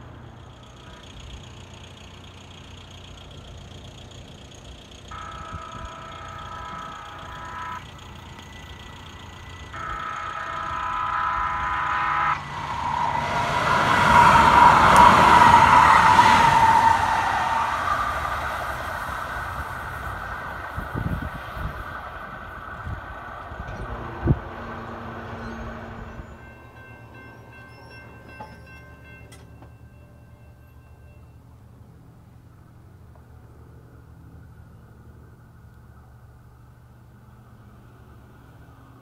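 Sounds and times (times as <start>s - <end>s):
train wheels rumbling: 0.0s - 39.0s
train wheels squealing: 0.4s - 31.7s
train horn blasts: 5.0s - 21.8s, 23.6s - 31.5s.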